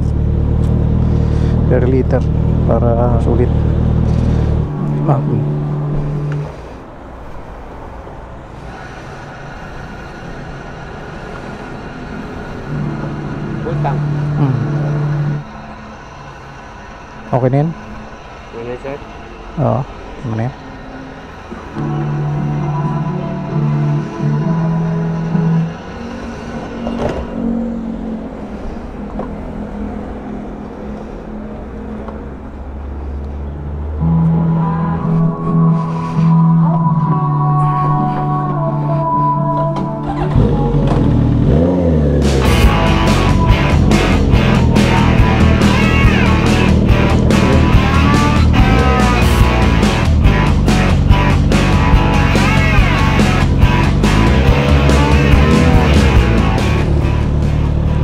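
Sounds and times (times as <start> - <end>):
motorcycle engine running: 0.0 - 6.6, 40.0 - 58.0
wind and road noise: 0.0 - 37.3, 39.6 - 58.0
background music: 1.5 - 6.9, 11.0 - 30.8, 33.6 - 58.0.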